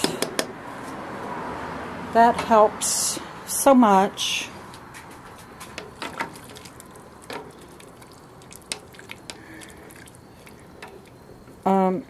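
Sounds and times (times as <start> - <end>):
water dripping and splashing: 5.9 - 11.2.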